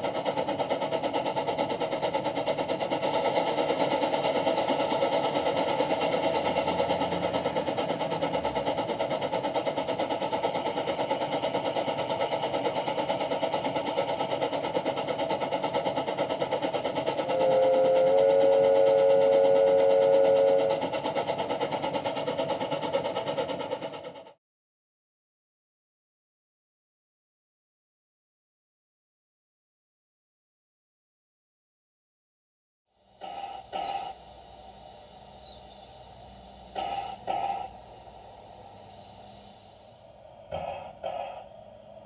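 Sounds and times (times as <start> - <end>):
model steam locomotive chuffing: 0.0 - 24.4, 32.9 - 42.0.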